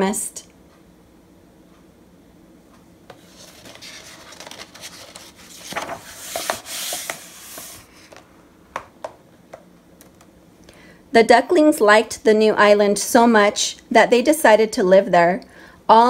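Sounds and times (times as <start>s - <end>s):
book page turning: 3.1s - 8.2s
hand sweeping across paper: 3.2s - 8.1s.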